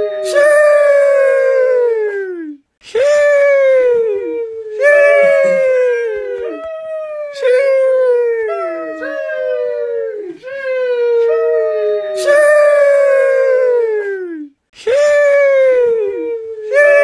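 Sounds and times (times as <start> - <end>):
person exclaiming sheesh: 4.8 - 6.4.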